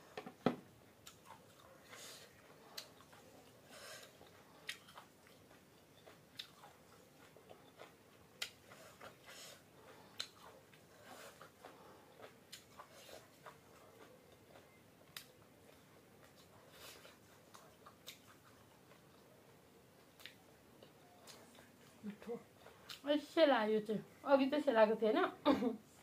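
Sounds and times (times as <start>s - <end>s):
chewing and biting: 1.0s - 19.4s.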